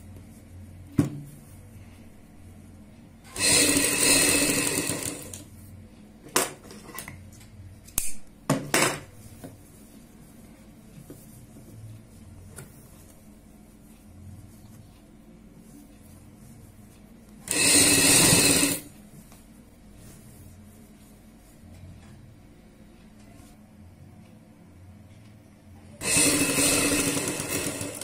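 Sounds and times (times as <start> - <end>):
sewing machine stitching: 3.3 - 5.4, 17.5 - 18.9, 26.0 - 28.0.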